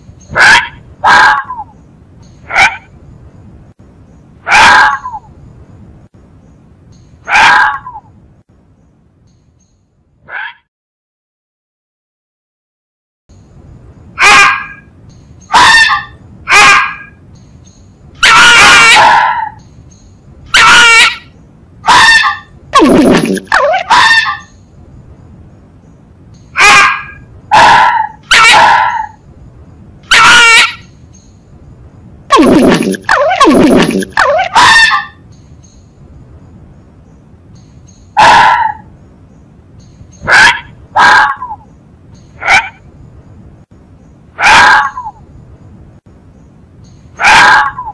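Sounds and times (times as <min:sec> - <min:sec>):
low background hiss: 0:00.0 - 0:07.3, 0:08.0 - 0:10.2, 0:13.3 - 0:14.2, 0:14.8 - 0:16.5, 0:17.1 - 0:18.2, 0:19.6 - 0:20.6, 0:21.2 - 0:22.8, 0:24.4 - 0:26.6, 0:29.1 - 0:30.1, 0:30.8 - 0:32.4, 0:35.1 - 0:38.2, 0:38.8 - 0:44.4, 0:45.1 - 0:47.2
fox yelping: 0:00.3 - 0:01.7, 0:02.5 - 0:02.9, 0:04.4 - 0:05.3, 0:07.2 - 0:08.1, 0:10.3 - 0:10.7, 0:14.2 - 0:14.9, 0:15.5 - 0:17.2, 0:18.2 - 0:19.6, 0:20.5 - 0:24.5, 0:26.6 - 0:29.2, 0:30.1 - 0:30.8, 0:32.3 - 0:35.2, 0:38.2 - 0:38.9, 0:40.2 - 0:41.6, 0:42.4 - 0:42.8, 0:44.4 - 0:45.2, 0:47.2 - 0:47.9.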